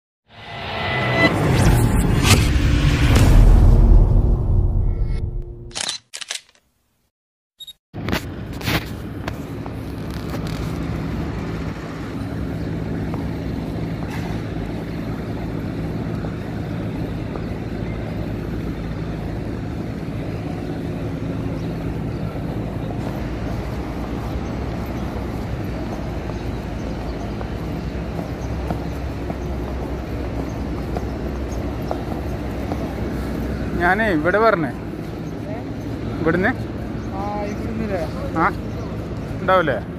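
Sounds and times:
short clicks: 0:05.7 - 0:06.7
low traffic hum: 0:08.0 - 0:39.9.

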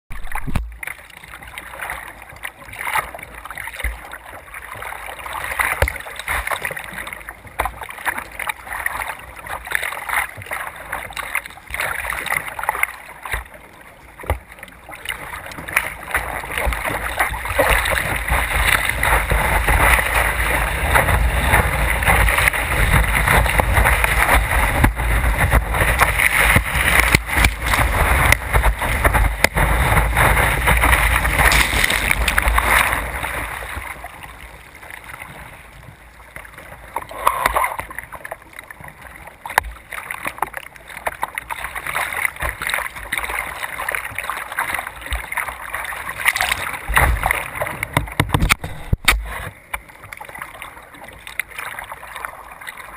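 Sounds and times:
splashes against hull: 0:00.1 - 0:35.9, 0:36.5 - 0:52.9
water rushing: 0:00.1 - 0:52.9
wind buffeting camera: 0:17.4 - 0:33.8.

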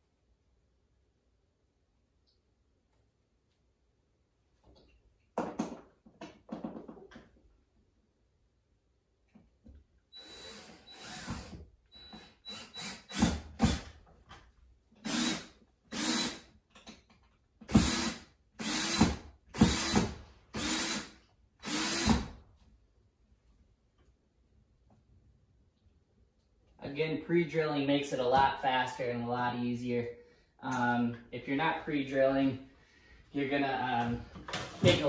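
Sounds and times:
power drill whining: 0:10.1 - 0:14.0, 0:15.0 - 0:16.5, 0:17.7 - 0:22.4.

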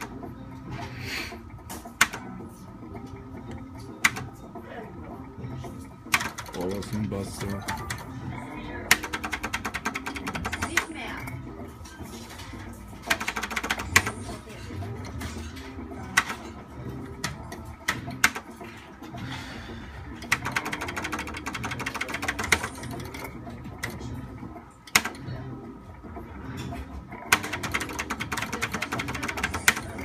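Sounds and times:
slot machine clicks: 0:01.7 - 0:02.4, 0:04.0 - 0:04.4, 0:06.1 - 0:08.1, 0:08.8 - 0:11.4, 0:12.4 - 0:18.7, 0:20.2 - 0:24.1, 0:24.8 - 0:25.4, 0:27.2 - 0:30.0
rapid ticking of win tally: 0:06.1 - 0:08.1, 0:08.7 - 0:11.4, 0:13.0 - 0:15.4, 0:16.0 - 0:18.8, 0:20.0 - 0:24.0, 0:27.1 - 0:30.0.

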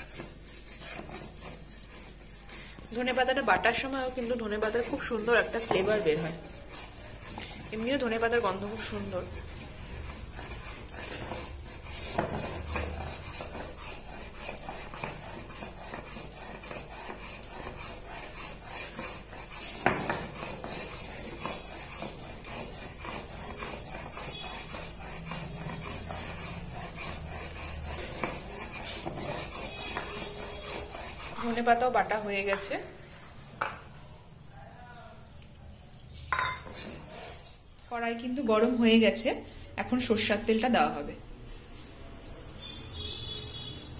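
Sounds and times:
stone scraping on stone: 0:00.0 - 0:32.8, 0:36.3 - 0:37.6.

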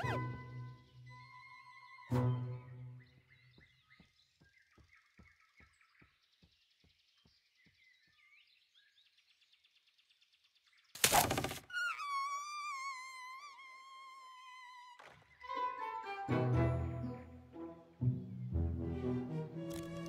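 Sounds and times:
faint high bird-like chirps: 0:00.0 - 0:10.9, 0:11.6 - 0:15.6.

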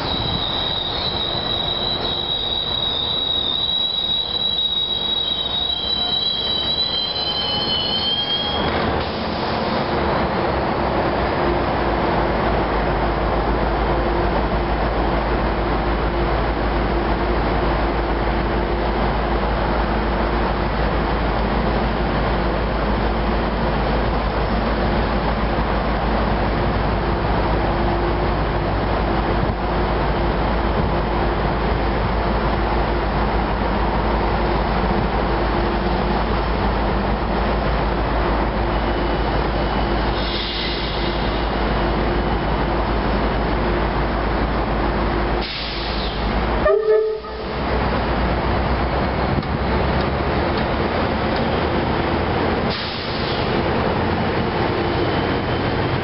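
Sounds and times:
diesel locomotive rumbling: 0:00.0 - 0:56.0
train horn toot: 0:46.6 - 0:47.6.

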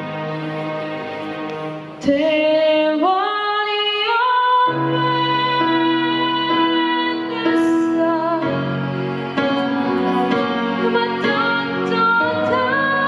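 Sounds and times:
soft instrumental accompaniment: 0:00.0 - 0:13.0
boy singing: 0:10.8 - 0:13.0.

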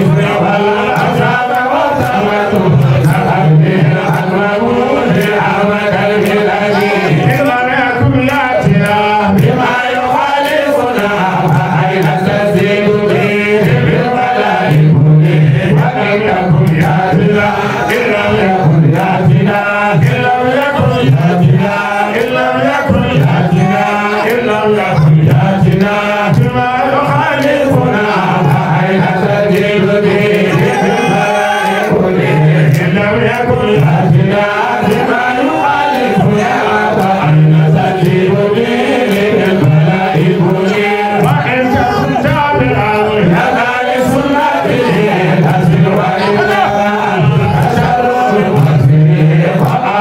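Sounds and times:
man chanting into a microphone: 0:00.0 - 0:50.0.

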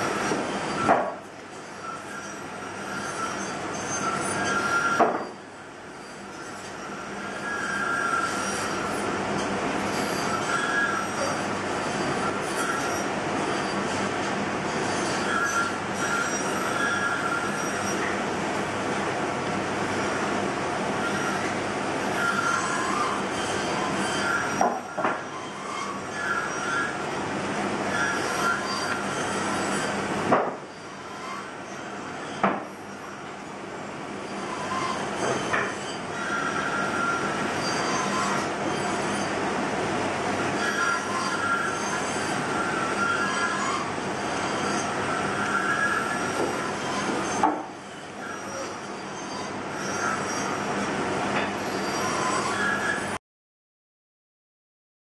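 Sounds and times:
short high squeaky tones: 0:34.3 - 0:39.4, 0:40.5 - 0:51.0, 0:51.6 - 0:53.2.

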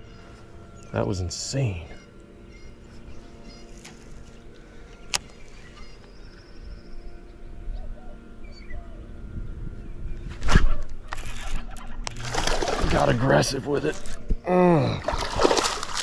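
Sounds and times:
songbirds chirping faintly: 0:00.0 - 0:12.3
steady low hum: 0:00.0 - 0:16.0.

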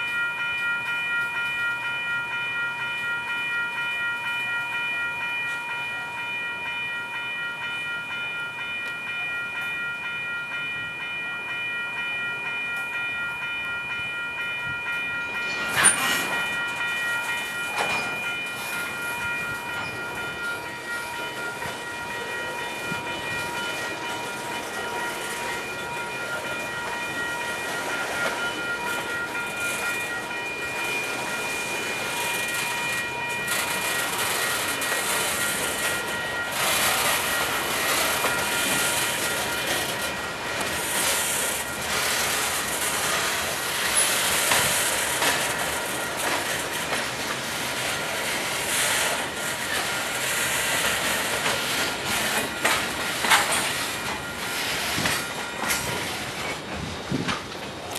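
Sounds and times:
freight cars rolling: 0:14.8 - 0:57.9
wheels clacking over rail joints: 0:15.0 - 0:57.9.

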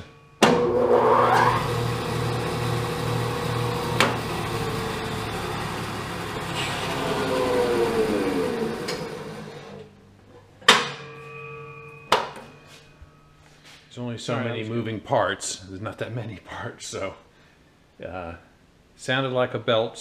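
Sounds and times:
bandsaw running and winding down: 0:00.6 - 0:09.8.

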